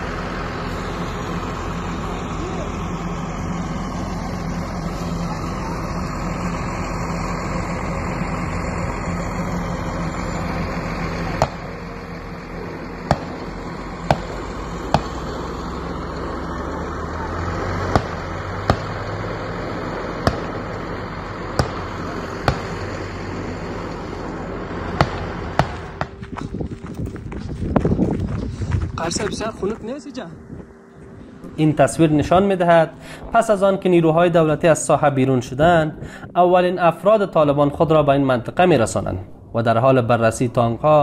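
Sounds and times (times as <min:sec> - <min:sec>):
low rumble: 0:00.0 - 0:34.8
vehicle engine running: 0:00.0 - 0:36.2
sharp cracks: 0:17.9 - 0:19.0, 0:20.2 - 0:20.8.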